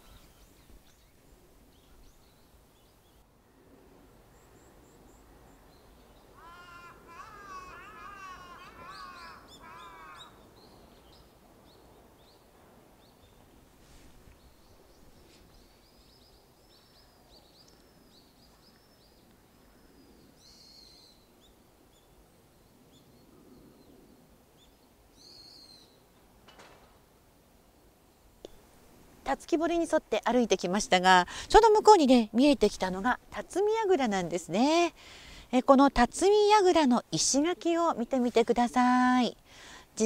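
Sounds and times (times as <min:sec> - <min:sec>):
harsh bird calls: 0:05.5 - 0:11.2.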